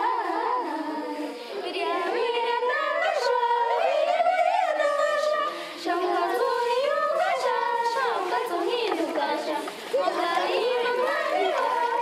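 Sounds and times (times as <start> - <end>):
woman singing unaccompanied: 0.0 - 12.0.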